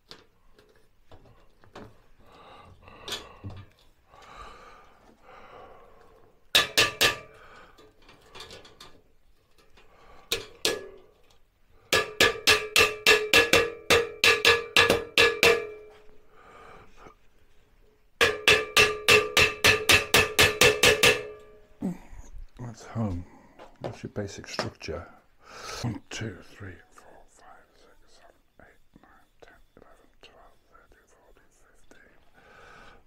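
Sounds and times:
mallet striking ringing steel frame: 11.9 - 16.0, 18.2 - 21.6.

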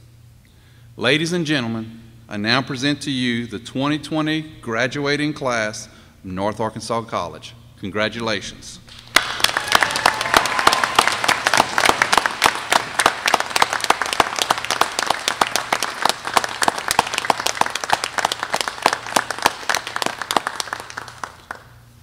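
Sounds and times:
small group applauding: 8.9 - 21.9.

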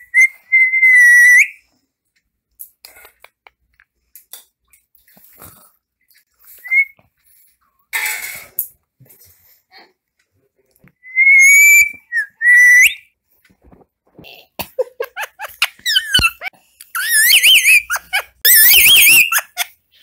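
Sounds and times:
parakeet whistling: 0.0 - 1.6, 11.2 - 13.0, 17.0 - 19.6
parakeet chirpy calls: 17.0 - 19.6.

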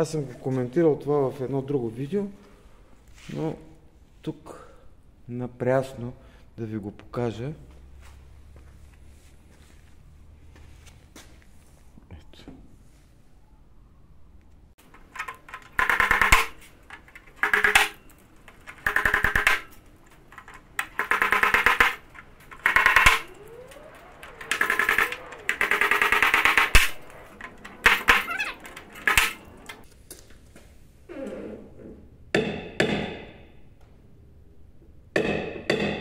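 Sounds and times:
power tool buzzing hammering: 15.6 - 29.8.

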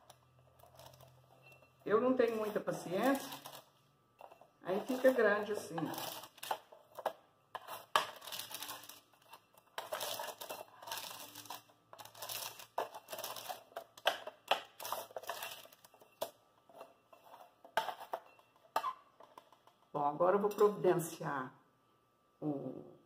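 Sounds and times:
baking paper crinkling: 0.0 - 3.8, 4.7 - 18.2
metal spatula scraping tray: 4.2 - 6.6, 7.6 - 13.8.

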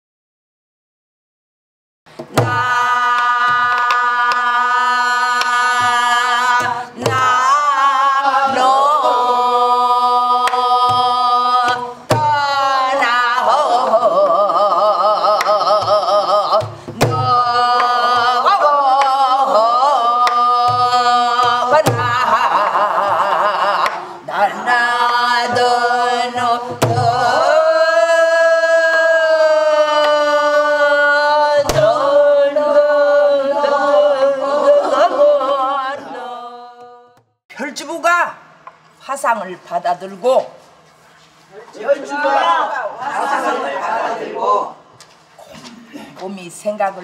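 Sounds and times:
person singing with vibrato: 2.1 - 37.4
drum strokes and thumps: 2.2 - 9.1, 10.4 - 13.0, 14.1 - 24.0, 25.4 - 27.8, 31.6 - 32.1.

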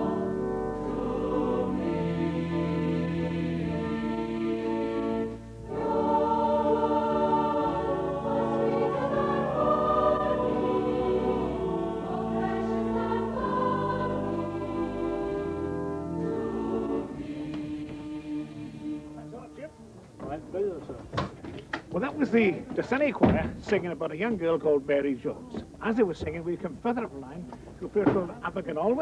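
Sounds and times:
choir singing: 0.0 - 19.6.

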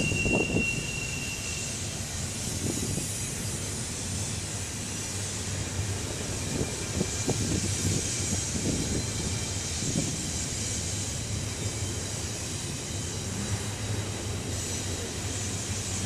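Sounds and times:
freight train wheels rumbling: 0.0 - 16.0.

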